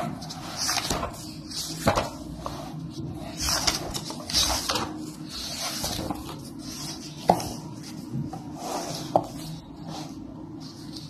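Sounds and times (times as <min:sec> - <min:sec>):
paper pages turning: 0:00.0 - 0:08.1.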